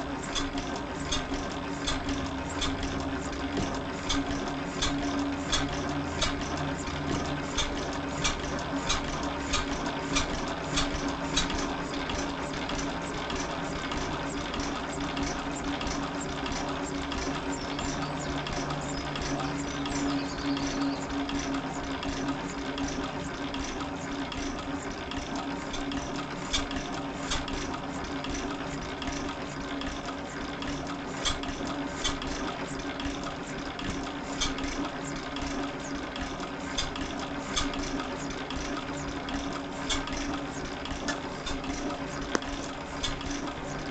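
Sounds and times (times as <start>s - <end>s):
stationary engine running: 0.0s - 43.9s.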